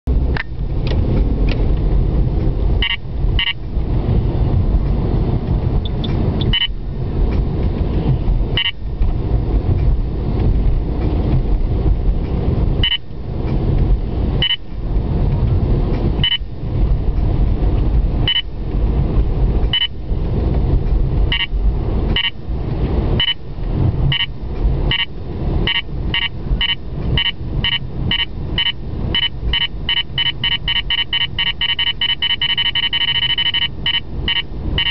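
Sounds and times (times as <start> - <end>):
car road and engine noise: 0.0 - 34.9
short high beeps: 2.8 - 3.6, 5.8 - 6.8, 8.6 - 8.8, 12.8 - 13.0, 14.4 - 14.6, 16.2 - 16.5, 18.3 - 18.5, 19.8 - 20.0, 21.3 - 21.5, 22.2 - 22.4, 23.2 - 23.4, 24.1 - 24.3, 25.7 - 34.9.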